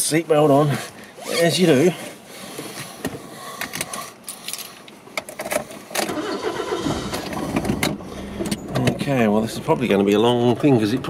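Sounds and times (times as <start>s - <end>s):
car engine starting and idling: 5.4s - 11.0s.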